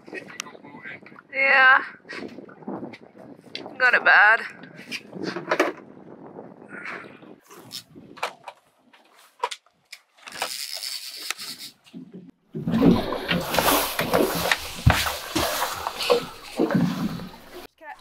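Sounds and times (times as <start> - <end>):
rumbling and rustling: 11.9 - 17.7.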